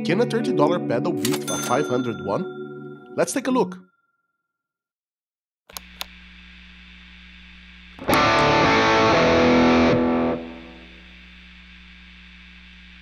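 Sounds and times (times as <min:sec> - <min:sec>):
amplifier hum: 0:05.7 - 0:13.0
distorted electric guitar chord: 0:08.0 - 0:11.0.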